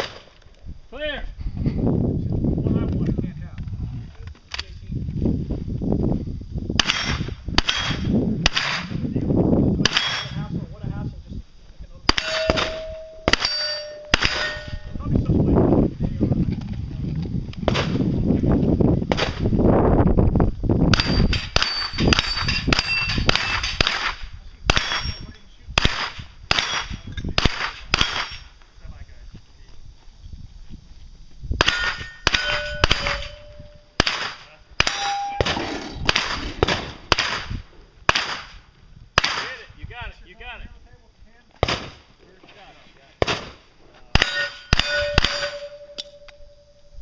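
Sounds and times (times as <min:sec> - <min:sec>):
gunshots: 0:06.8 - 0:09.0, 0:12.1 - 0:14.8, 0:17.7 - 0:18.0, 0:19.1 - 0:19.4, 0:20.9 - 0:25.2, 0:25.8 - 0:28.4, 0:31.6 - 0:38.6, 0:39.2 - 0:39.6, 0:41.6 - 0:42.0, 0:43.2 - 0:43.6, 0:44.2 - 0:45.8
steel plates clanging: 0:12.1 - 0:15.0, 0:31.7 - 0:33.8, 0:34.8 - 0:36.6, 0:44.2 - 0:46.4.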